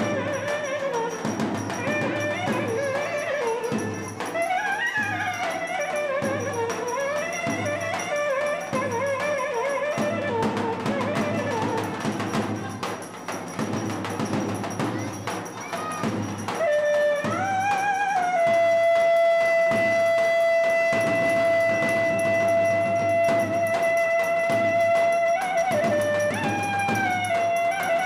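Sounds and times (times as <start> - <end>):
drumming: 0.0 - 28.0.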